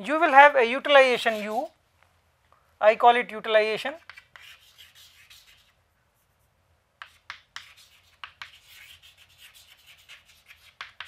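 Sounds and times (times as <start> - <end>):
chalk writing on chalkboard: 1.1 - 1.8, 3.9 - 6.4, 7.0 - 11.0.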